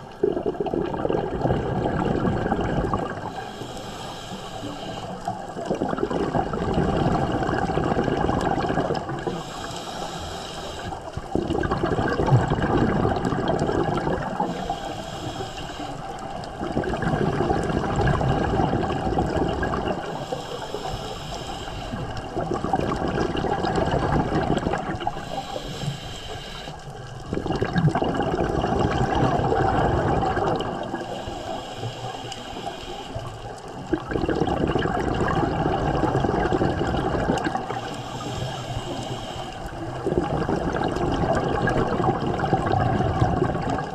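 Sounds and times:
bubbling exhalation underwater: 0.0s - 3.4s, 5.6s - 9.4s, 11.2s - 14.6s, 16.5s - 20.2s, 22.2s - 25.4s, 27.2s - 31.1s, 33.8s - 37.9s, 39.8s - 43.9s
regulator inhalation hiss: 3.2s - 5.6s, 9.3s - 11.2s, 14.4s - 16.4s, 20.0s - 22.2s, 25.0s - 27.1s, 30.9s - 33.6s, 37.6s - 39.8s.

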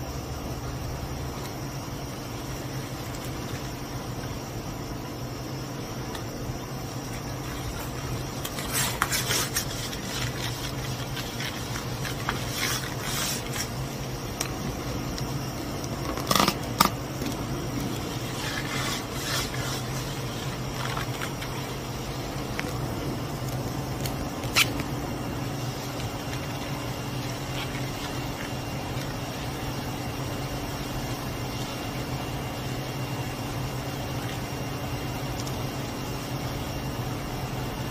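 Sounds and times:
low room hum: 0.0s - 37.9s
rustling: 7.1s - 14.0s.

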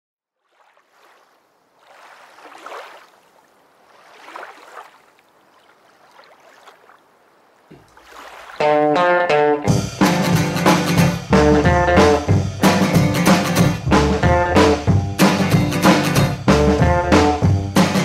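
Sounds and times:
small waves lapping: 0.2s - 9.2s
electric guitar and drums instrumental: 8.6s - 18.0s.

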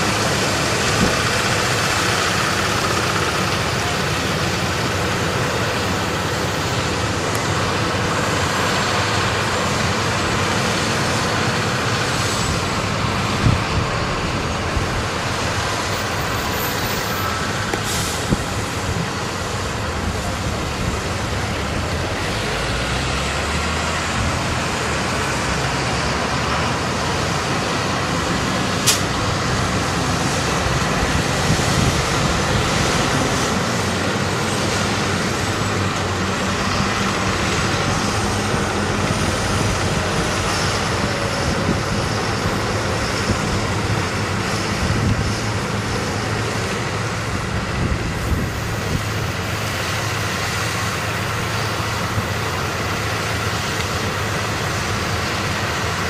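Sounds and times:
tractor diesel engines under load: 0.0s - 56.0s
sharp click: 28.8s - 29.1s.

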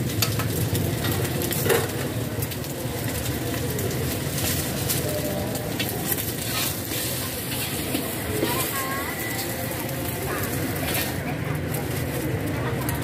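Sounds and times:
gas burner rumble: 0.0s - 13.0s
noodles sizzling in oil: 0.0s - 13.0s
metal spatula scraping wok: 5.8s - 12.2s.

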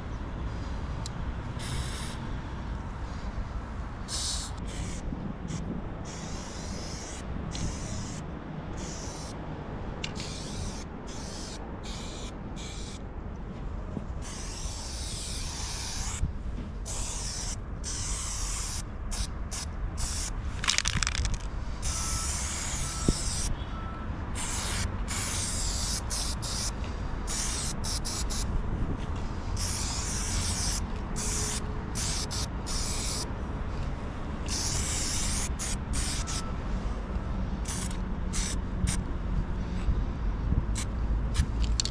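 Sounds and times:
spray paint can hissing: 1.6s - 2.2s, 4.1s - 9.4s, 10.0s - 13.0s, 14.2s - 16.2s, 16.8s - 23.5s, 24.4s - 26.7s, 27.3s - 28.5s, 29.6s - 33.3s, 34.4s - 36.4s, 37.6s - 39.0s.

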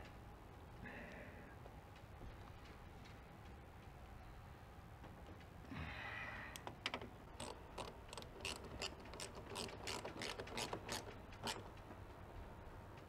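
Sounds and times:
ratcheting driver clicking: 6.6s - 11.8s.

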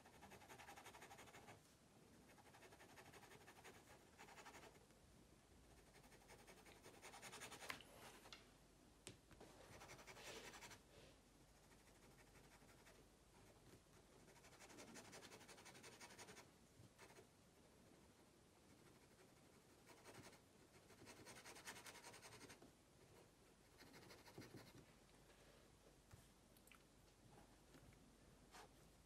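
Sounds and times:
pen scratching on paper: 23.8s - 24.8s.

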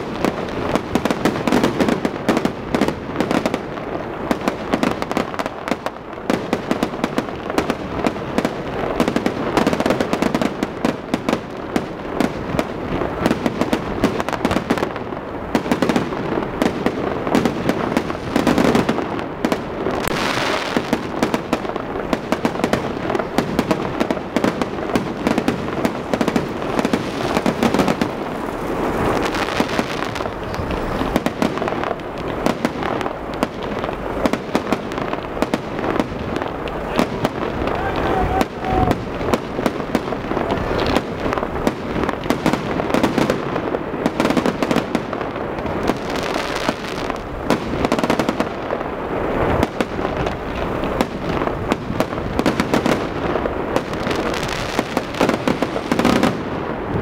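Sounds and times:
fireworks bursts and bangs: 0.0s - 57.0s.

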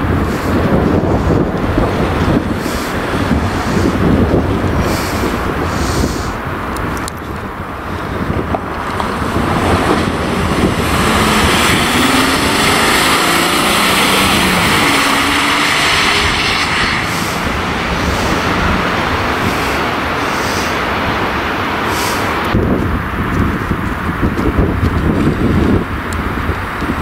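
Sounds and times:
van driving past: 8.8s - 20.2s.

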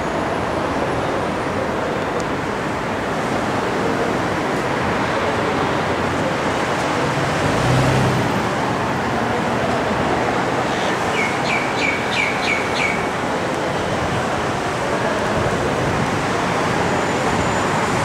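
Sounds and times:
outdoor traffic noise: 0.0s - 18.0s
bird chirping: 10.8s - 13.1s.

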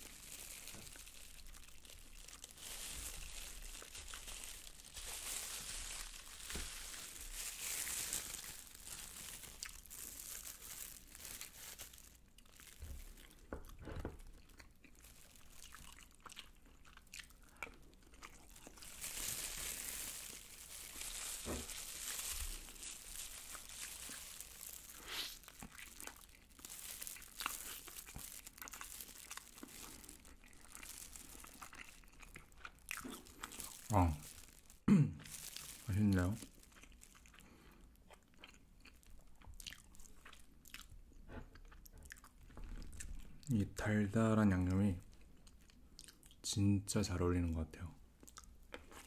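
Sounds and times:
plastic glove crinkling: 0.0s - 40.5s
crunching and chewing: 0.0s - 43.6s, 44.4s - 46.4s, 48.2s - 49.0s
fried chicken tearing: 14.9s - 37.4s.

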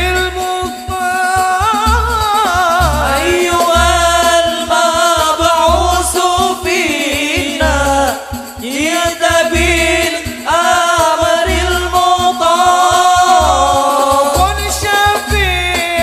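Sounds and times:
frame drums beating: 0.0s - 16.0s
men singing through microphones: 0.0s - 16.0s.

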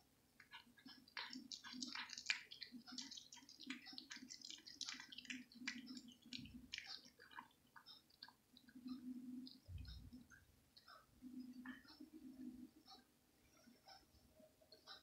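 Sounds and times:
cat chewing wetly: 0.4s - 10.9s.

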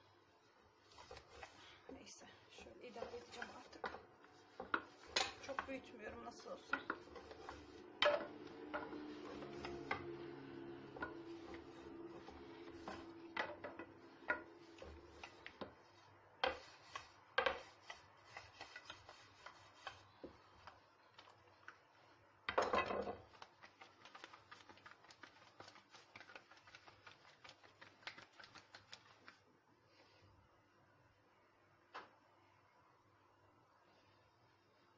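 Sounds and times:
rolling pin rolling dough: 0.8s - 22.1s.

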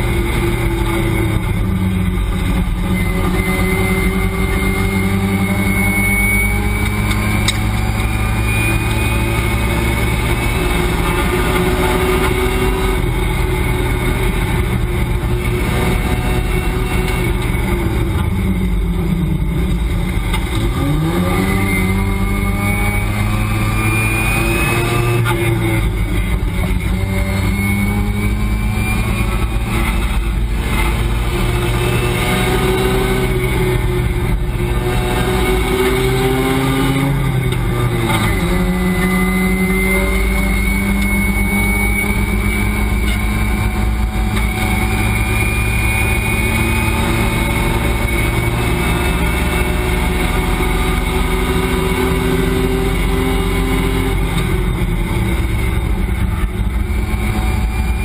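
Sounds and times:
race car engine accelerating: 0.0s - 58.0s.

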